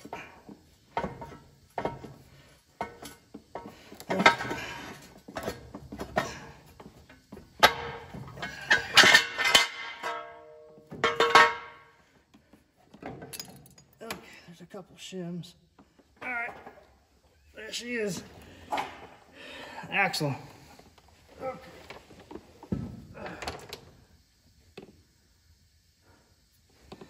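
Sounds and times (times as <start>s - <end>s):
metal knocking and clanking: 0.9s - 11.9s.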